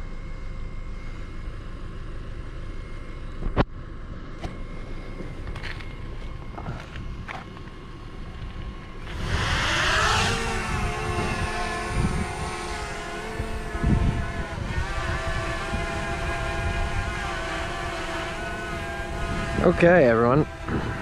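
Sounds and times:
drone propeller whine: 0.0 - 21.0
low rumble: 0.0 - 21.0.

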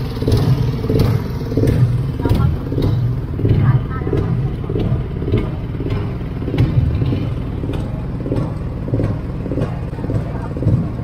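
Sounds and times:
boat engine low rumble: 0.0 - 11.0.

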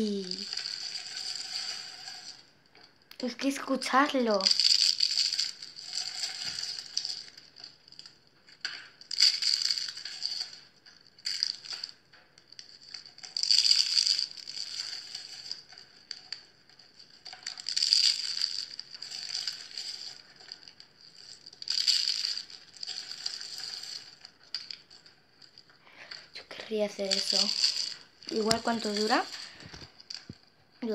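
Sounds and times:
dried soap crunching in hand: 0.0 - 2.5, 4.4 - 30.4.

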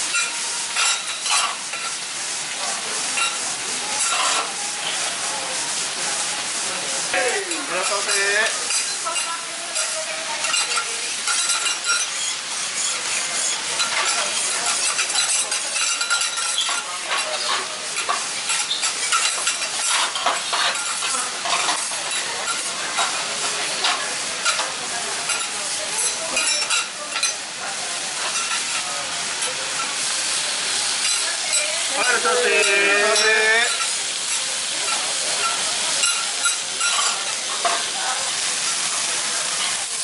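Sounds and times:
food sizzling on a griddle: 0.0 - 40.0
metal spatulas scraping griddle: 0.1 - 1.9, 4.0 - 4.6, 7.3 - 24.7, 31.0 - 37.9.

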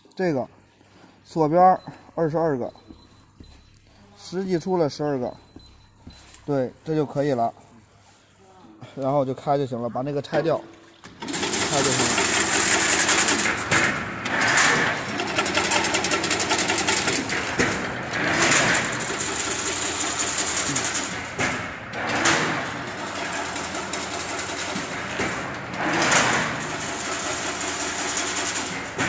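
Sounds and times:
weaving machine clatter: 11.1 - 29.0.

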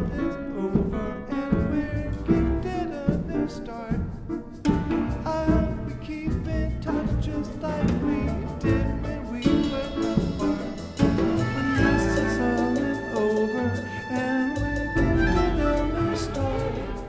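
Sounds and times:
double bass: 0.0 - 17.0
grand piano: 0.0 - 17.0
percussion: 0.0 - 17.0
bowed cello: 4.8 - 17.0.

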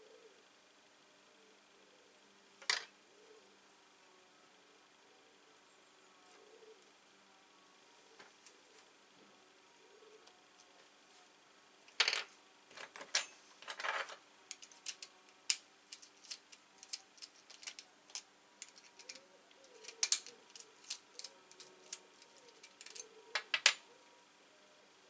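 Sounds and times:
metallic clicks of tweezers and pins: 14.5 - 23.1.

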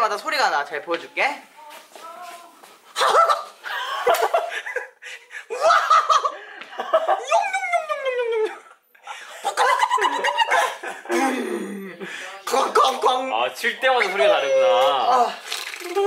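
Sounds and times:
laughter: 3.0 - 11.1.

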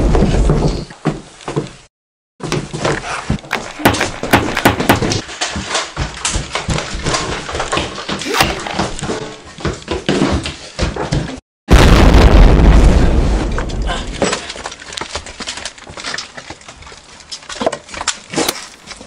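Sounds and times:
knocks and bumps of people moving: 0.0 - 11.4
camera handling noise: 3.5 - 4.7.

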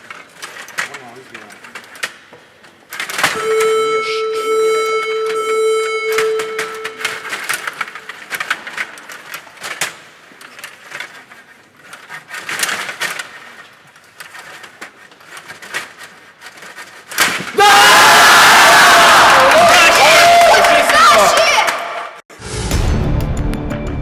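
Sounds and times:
steady beep: 3.4 - 7.5
people shouting and cheering: 17.6 - 22.2.

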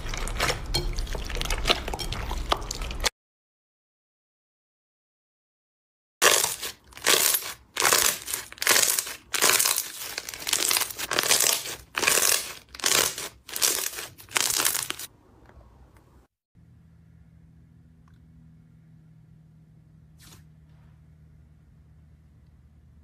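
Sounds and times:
slime crackling in hands: 6.2 - 15.1.

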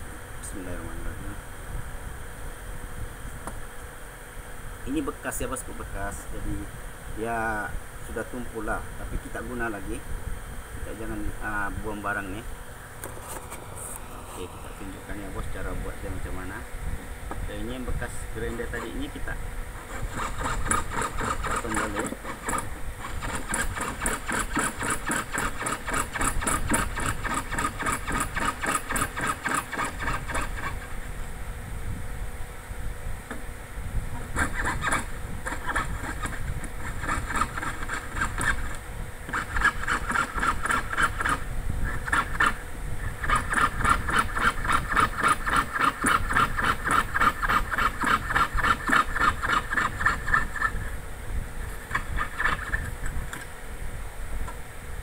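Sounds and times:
piercing saw rasping through brass: 18.4 - 19.2, 19.8 - 30.8, 34.3 - 42.6, 43.2 - 50.8.

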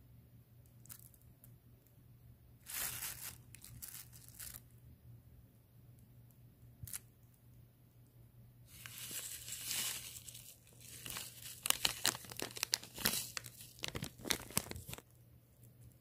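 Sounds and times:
packaging crinkling and rustling: 2.7 - 4.7, 8.7 - 15.1.

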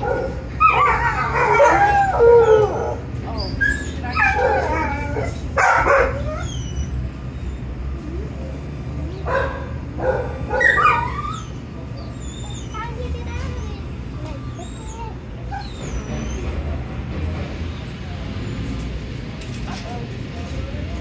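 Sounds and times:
dog howling and whining: 0.0 - 7.7, 10.0 - 12.9, 14.6 - 16.5.

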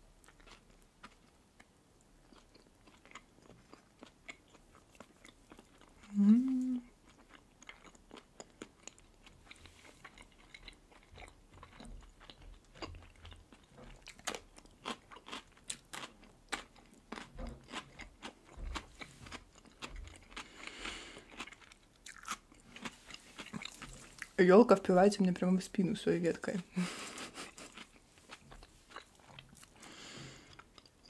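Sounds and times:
crunching and chewing cucumber: 0.2 - 6.2, 6.9 - 24.4, 27.2 - 31.0.

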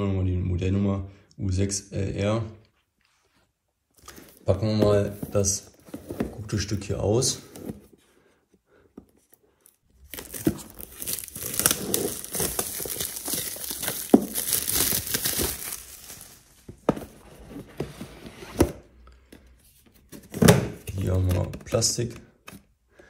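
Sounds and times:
shrink wrap crinkling: 9.9 - 16.7.

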